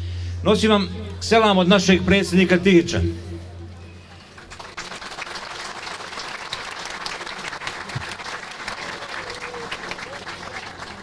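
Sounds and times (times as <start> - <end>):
crowd applauding: 3.8 - 11.0.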